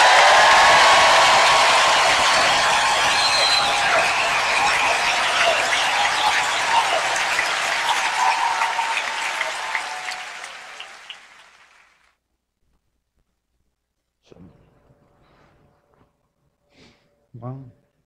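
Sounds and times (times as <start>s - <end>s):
congregation applauding: 0.0s - 12.0s.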